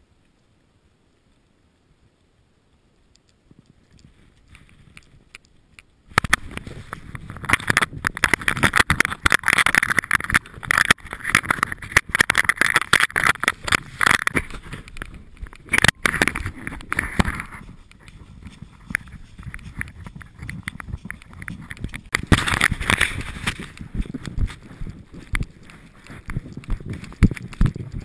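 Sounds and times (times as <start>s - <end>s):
faint ticks: 2.9s - 8.5s
camera rattling on a ridden horse: 3.5s - 28.0s
wind buffeting microphone: 6.1s - 28.0s.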